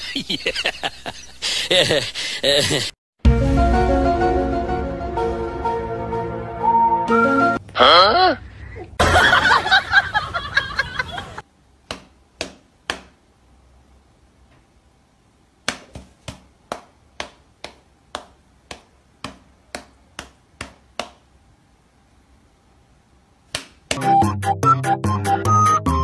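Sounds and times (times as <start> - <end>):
music: 3.2 - 7.6, 24.0 - 26.0
voice: 7.8 - 8.4.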